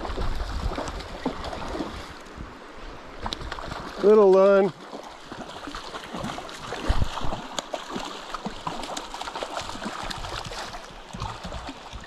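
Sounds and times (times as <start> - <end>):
river running over rocks: 0.0 - 12.0
fish splashing at surface: 4.8 - 12.0.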